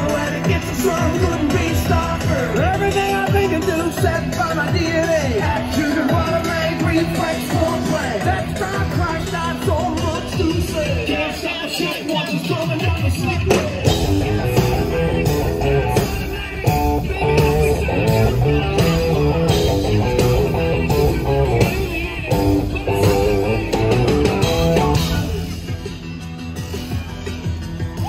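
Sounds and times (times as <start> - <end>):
bass guitar: 0.0 - 11.5, 13.0 - 28.0
drums: 0.0 - 28.0
electric guitar riff: 13.8 - 25.9.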